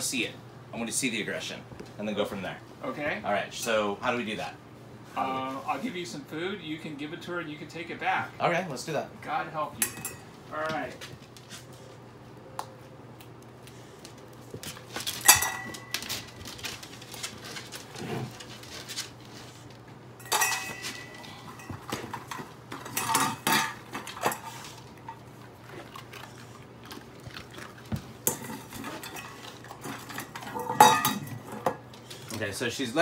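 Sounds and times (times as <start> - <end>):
metal dog bowls clanking: 15.2 - 16.3, 20.2 - 25.3, 27.6 - 32.4.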